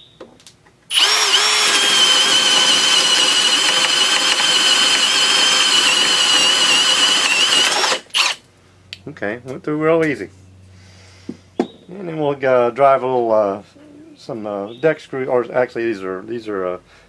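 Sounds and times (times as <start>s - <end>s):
drill boring through wood: 0.9s - 8.4s.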